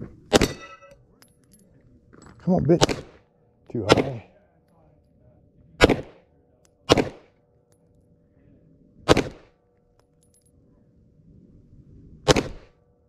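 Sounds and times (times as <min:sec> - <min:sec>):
pistol shots: 0:00.3 - 0:00.7, 0:02.7 - 0:03.2, 0:03.8 - 0:04.3, 0:05.8 - 0:06.2, 0:06.8 - 0:07.3, 0:09.1 - 0:09.5, 0:12.3 - 0:12.8.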